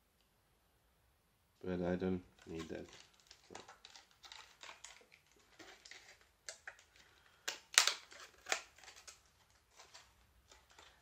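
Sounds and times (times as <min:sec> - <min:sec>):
plastic items clicking: 0:02.3 - 0:11.0.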